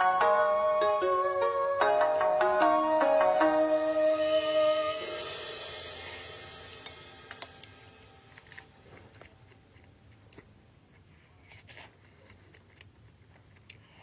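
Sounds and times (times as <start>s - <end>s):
quiet chewing: 8.4s - 14.0s.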